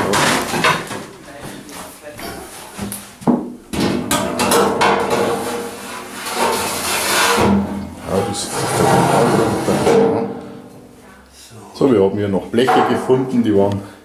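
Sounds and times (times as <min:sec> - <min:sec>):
metal pan scraping on grill: 0:05.0 - 0:10.3.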